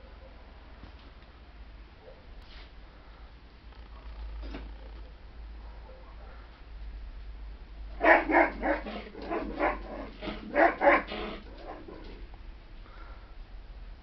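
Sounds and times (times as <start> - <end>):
dog barking: 2.0 - 2.3, 5.6 - 6.5, 8.0 - 12.2.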